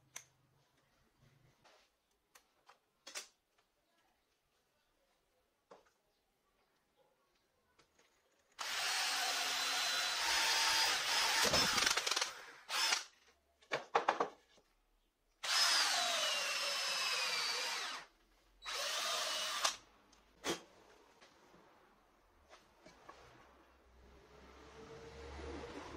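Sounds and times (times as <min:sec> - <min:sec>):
power drill boring into wood: 0:08.6 - 0:13.1, 0:15.4 - 0:19.8.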